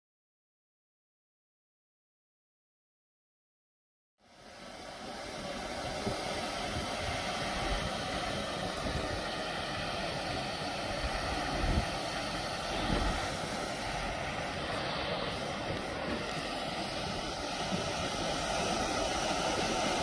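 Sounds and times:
water rushing over a dam spillway: 4.2s - 20.0s.

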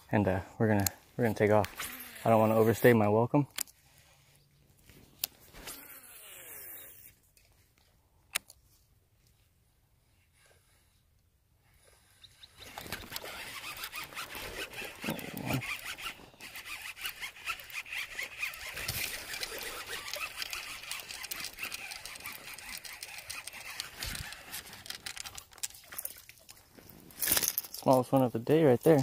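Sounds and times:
fishing reel clicking whir: 1.7s - 2.8s, 5.7s - 7.1s, 12.6s - 25.7s.

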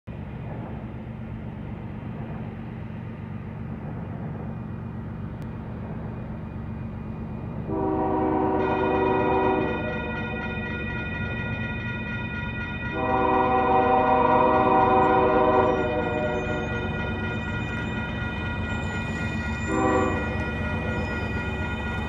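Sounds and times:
diesel locomotives rumbling: 0.1s - 22.0s
locomotive air horn chord: 7.7s - 10.0s, 12.9s - 16.6s, 19.7s - 20.5s.

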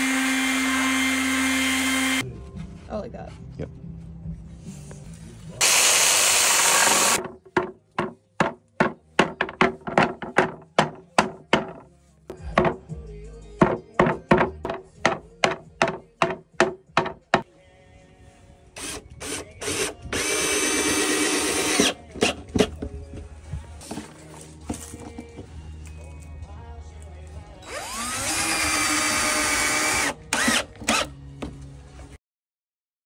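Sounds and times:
power saw cutting wood: 0.0s - 2.2s, 5.6s - 7.2s, 18.8s - 22.4s, 27.7s - 31.1s
cordless drill driving a screw: 5.6s - 7.2s, 18.8s - 22.4s, 27.6s - 31.1s
hammer striking a board: 7.2s - 11.9s, 12.5s - 12.8s, 13.6s - 17.4s.

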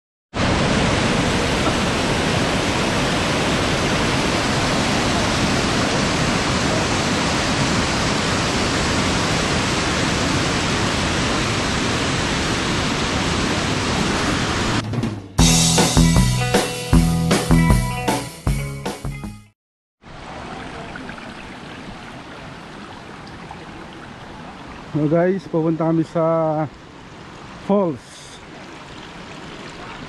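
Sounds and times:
waterfall rushing over rocks: 0.4s - 14.8s.

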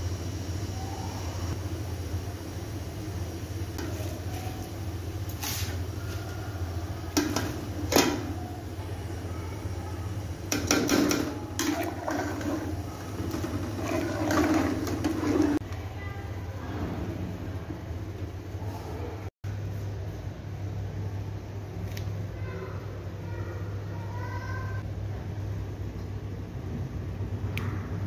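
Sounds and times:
water boiling in a metal pot: 0.0s - 15.6s
metal ladle scraping a pot: 10.9s - 15.6s.

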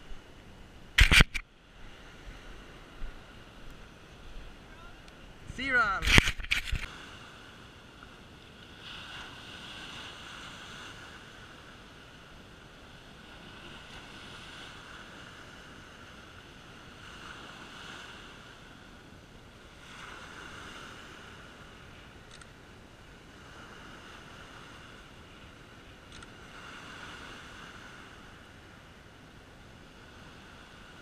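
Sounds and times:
small waves breaking on beach: 0.0s - 31.0s
wind on microphone: 0.9s - 7.1s
hand bumping camera: 1.0s - 1.4s, 6.0s - 6.9s.

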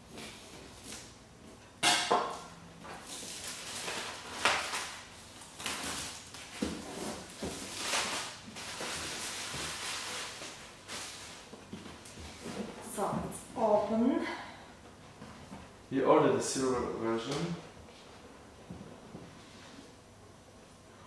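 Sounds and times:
plastic shrink-wrap tearing: 3.0s - 11.5s.

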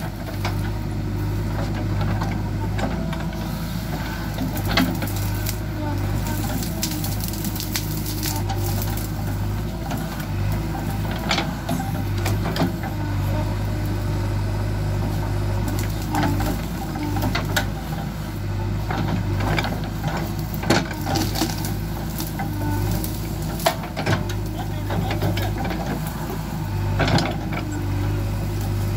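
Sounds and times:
diesel engine running under load: 0.0s - 28.9s
branches cracking and snapping: 4.4s - 12.8s, 15.5s - 18.0s, 18.8s - 28.9s.

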